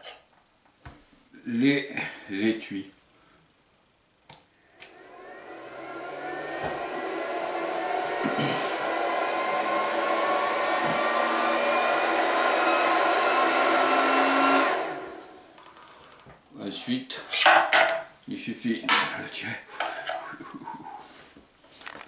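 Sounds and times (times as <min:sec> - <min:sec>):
induction heater rush and whine: 0:04.8 - 0:15.6.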